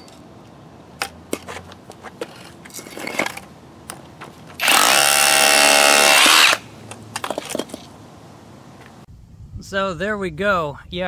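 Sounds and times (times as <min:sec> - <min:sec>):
hammer drill drilling into brick: 0:04.6 - 0:06.6.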